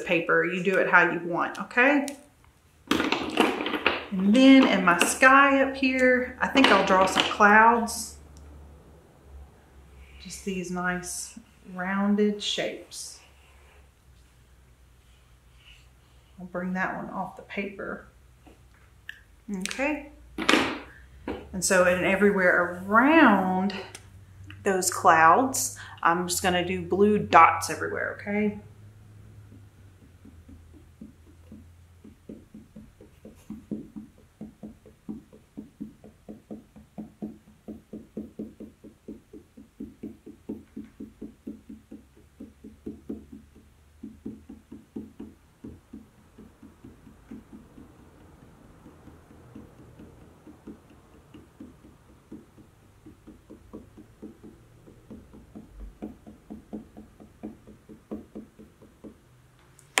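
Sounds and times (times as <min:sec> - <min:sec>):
marker tapping on paper: 0:02.9 - 0:07.6, 0:20.4 - 0:21.5, 0:29.3 - 1:00.0.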